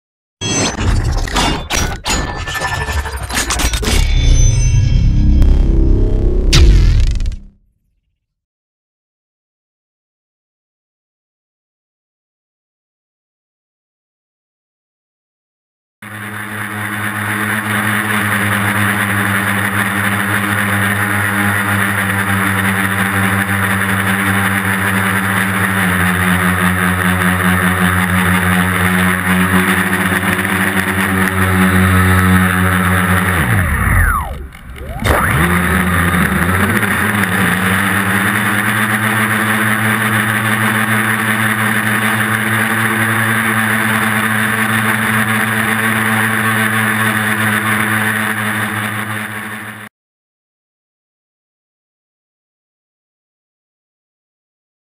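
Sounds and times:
drone motors and propellers: 0.4 - 7.6, 16.0 - 49.9.

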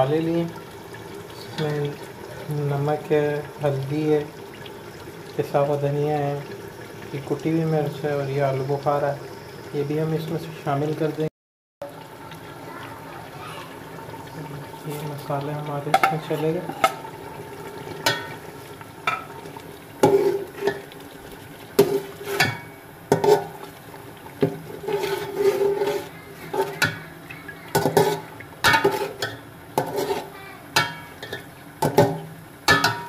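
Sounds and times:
food sizzling: 0.0 - 33.0
metal spoon scraping a pot: 16.0 - 17.1, 20.0 - 20.9, 21.8 - 23.6, 24.7 - 27.0, 27.7 - 33.0.

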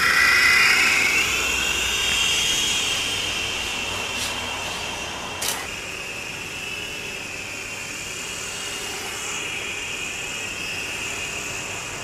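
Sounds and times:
small electric motor whine: 0.0 - 12.0
sharp click: 5.4 - 5.7.

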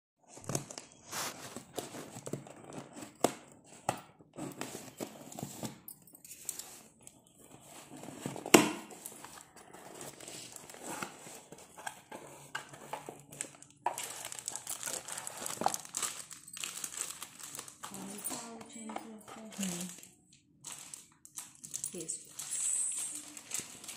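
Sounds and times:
packaging crinkling: 8.9 - 23.9.

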